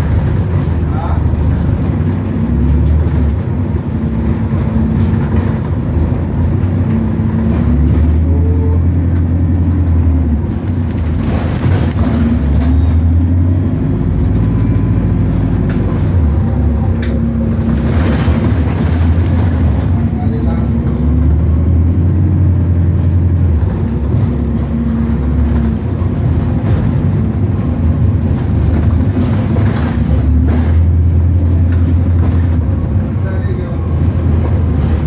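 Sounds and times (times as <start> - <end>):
bus engine droning: 0.0 - 35.0.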